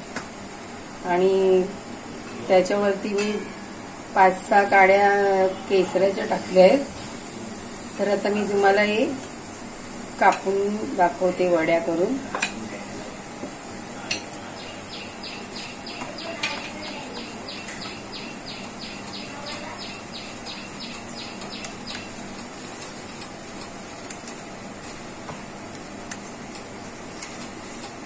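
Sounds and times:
bird chirping: 0:14.6 - 0:22.2.

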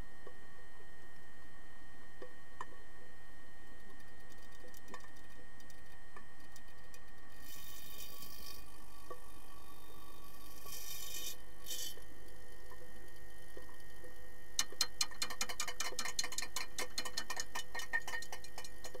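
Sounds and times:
faint steady hum: 0:00.0 - 0:19.0
hockey sticks clacking underwater: 0:14.6 - 0:19.0.

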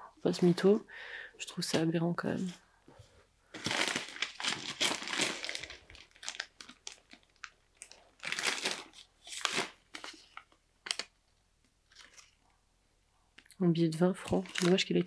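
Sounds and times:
paper rustling and crinkling: 0:03.5 - 0:11.1, 0:11.9 - 0:12.4, 0:14.2 - 0:15.0.

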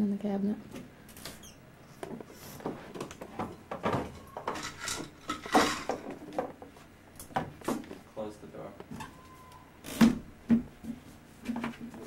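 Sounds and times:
bottles and jars knocking on shelves: 0:03.3 - 0:04.7, 0:10.0 - 0:11.0.

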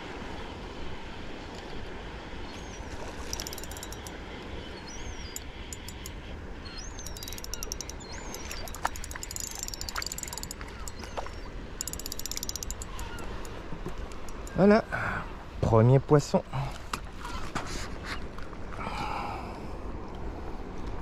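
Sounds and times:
wind and sea rushing: 0:00.0 - 0:21.0
fishing reel drag clicking: 0:03.3 - 0:04.2, 0:05.0 - 0:06.2, 0:06.8 - 0:14.6.

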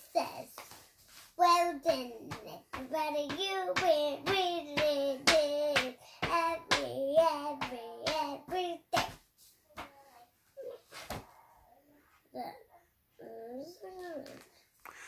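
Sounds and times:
child singing wordless tune: 0:01.4 - 0:09.2, 0:13.2 - 0:14.4.

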